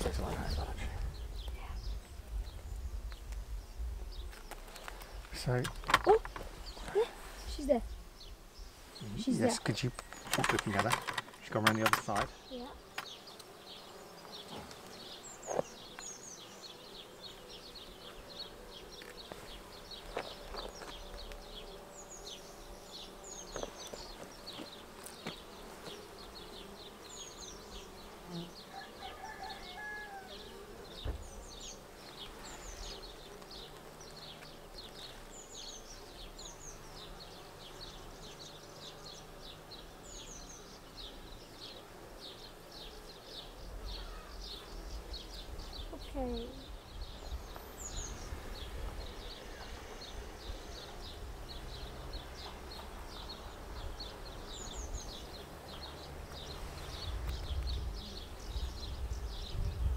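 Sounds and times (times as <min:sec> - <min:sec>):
honeybees buzzing: 0:00.0 - 0:59.9
light knocks of hive frames: 0:05.6 - 0:07.0, 0:09.9 - 0:13.6, 0:23.4 - 0:26.1, 0:30.9 - 0:32.4.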